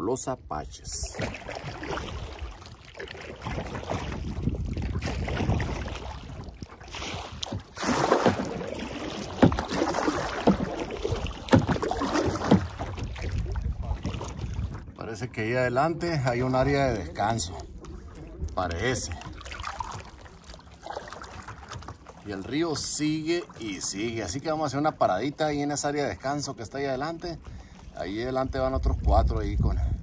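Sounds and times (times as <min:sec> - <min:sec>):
wind rumbling on microphone: 0:00.0 - 0:20.3, 0:27.4 - 0:30.0
paddle splashing in water: 0:01.0 - 0:15.0, 0:17.5 - 0:28.4.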